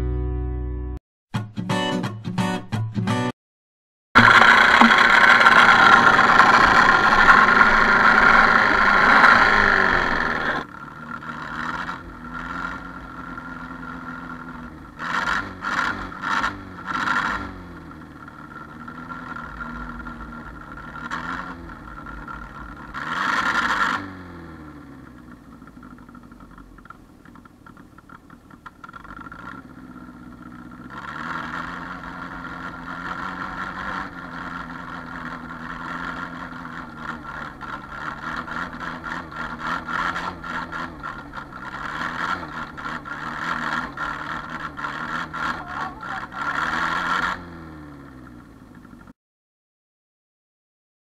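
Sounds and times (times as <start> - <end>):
tractor engine running: 4.2 - 49.1.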